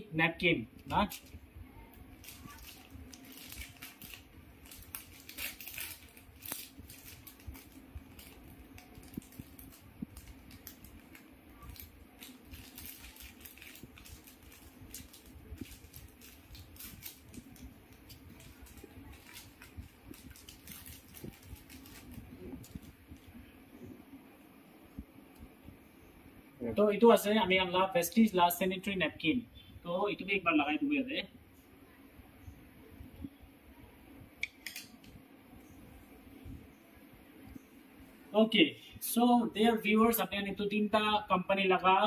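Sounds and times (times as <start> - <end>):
cardboard box and wrappers crinkling: 2.2 - 23.3.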